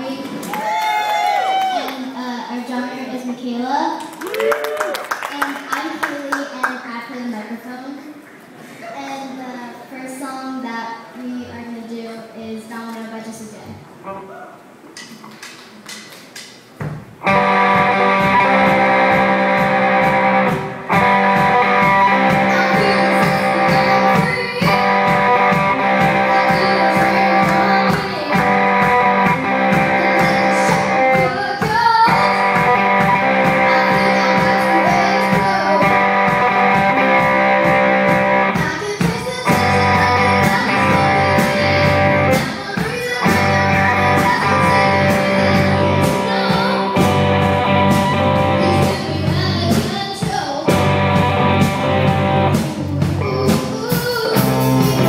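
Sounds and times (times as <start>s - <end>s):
drum beat: 16.8s - 55.0s
bass line: 17.2s - 38.6s, 39.4s - 42.5s, 43.2s - 55.0s
electric guitar strumming: 17.2s - 55.0s
person singing: 21.6s - 37.1s, 38.4s - 52.1s, 52.9s - 55.0s.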